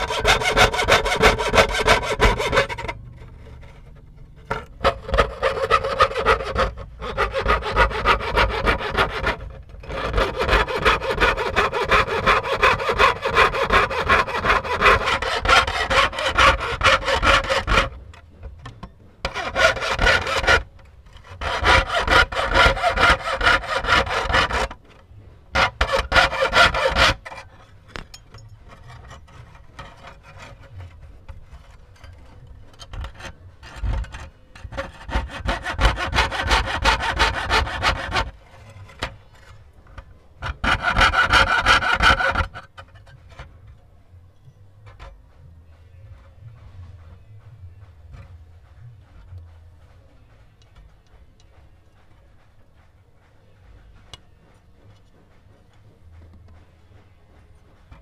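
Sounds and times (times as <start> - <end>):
saw cutting thin metal sheet: 0.0 - 18.4, 19.2 - 28.0, 28.7 - 39.6, 40.4 - 43.2.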